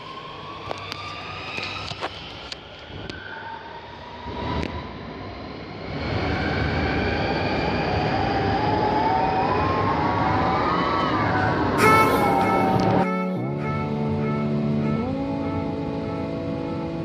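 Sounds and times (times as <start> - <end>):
metro train rumble: 0.0 - 17.0.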